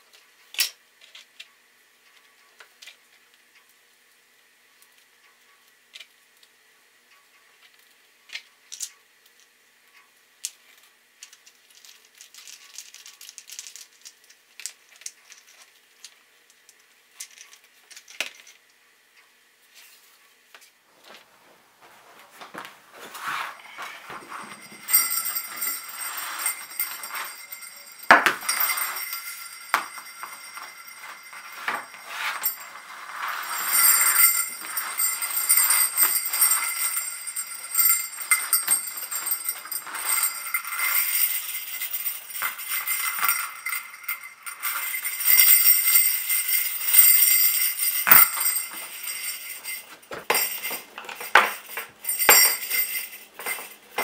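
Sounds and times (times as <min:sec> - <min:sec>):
sleigh bells jingling: 0:22.6 - 0:54.0.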